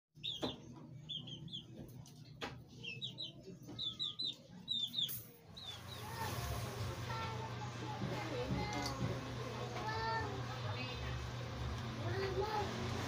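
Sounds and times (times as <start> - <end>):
birds chirping: 0.2 - 6.5.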